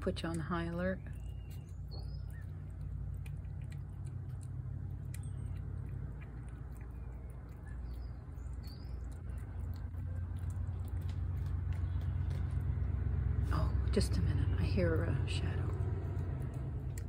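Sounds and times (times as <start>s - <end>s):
cat chewing food: 0.0s - 17.0s
faint bird chirps: 1.0s - 2.8s
low rumble: 1.0s - 17.0s.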